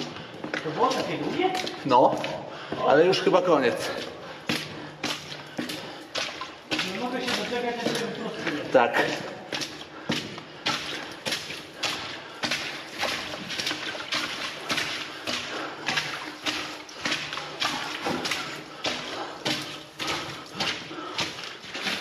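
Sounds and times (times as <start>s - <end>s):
footsteps splashing through water: 0.0s - 22.0s.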